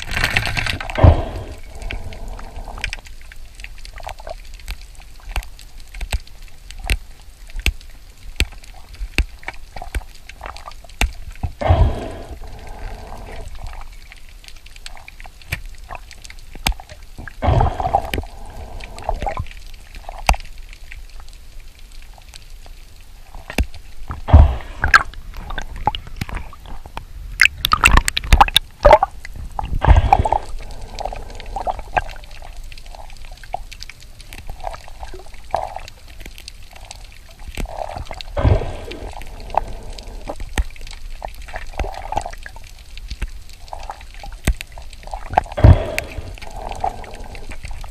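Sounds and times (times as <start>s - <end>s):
water gurgling underwater: 0.0s - 4.6s, 8.6s - 14.2s, 15.8s - 20.4s, 23.3s - 47.9s
sharp underwater clicks and crackles: 0.0s - 47.9s
bubbling surges: 0.8s - 3.0s, 11.6s - 13.9s, 17.2s - 20.0s, 24.2s - 26.6s, 27.5s - 33.5s, 37.6s - 40.6s, 45.0s - 47.9s.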